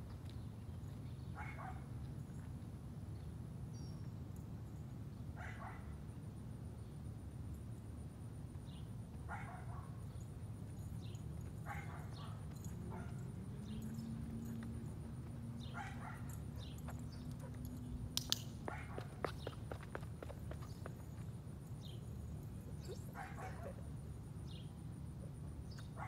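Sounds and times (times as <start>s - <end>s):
dog barking: 1.4s - 1.9s, 5.4s - 5.9s, 9.3s - 10.0s, 11.6s - 13.8s, 15.6s - 16.8s, 18.7s - 19.1s, 22.8s - 23.8s.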